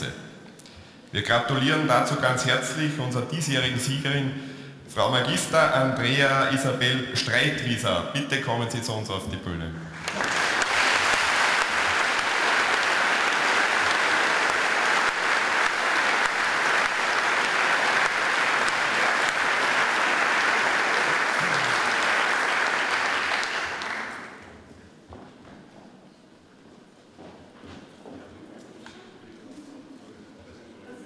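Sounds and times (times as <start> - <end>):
audience applauding: 10.0 - 24.5.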